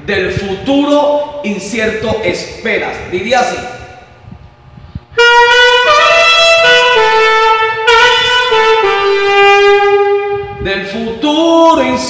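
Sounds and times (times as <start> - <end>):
alto saxophone melody: 5.1 - 10.6.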